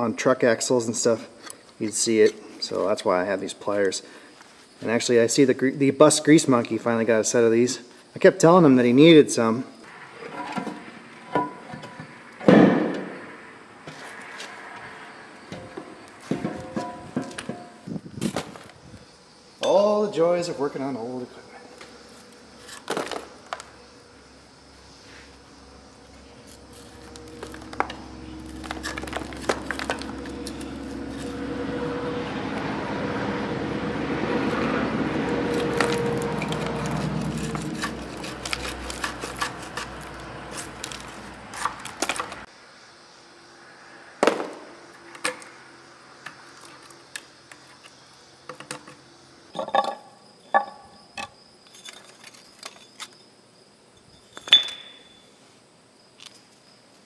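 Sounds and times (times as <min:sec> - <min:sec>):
hand tool scraping metal: 0:35.4 - 0:42.4.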